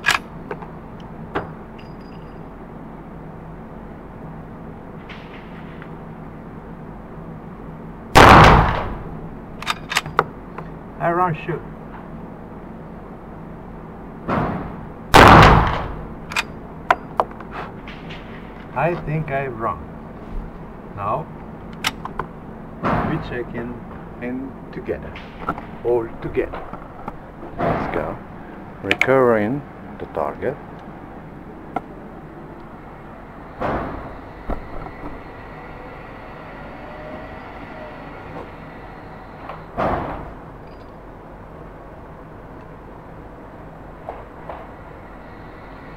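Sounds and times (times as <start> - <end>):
target carrier motor rumbling: 0.0 - 45.9
loud rifle shot: 8.2 - 9.1, 14.3 - 16.1
sharp clicks: 21.7 - 22.2.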